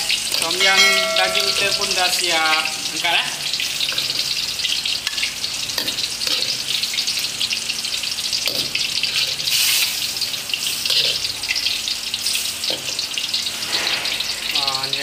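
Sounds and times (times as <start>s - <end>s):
broth sizzling in a wok: 0.0s - 15.0s.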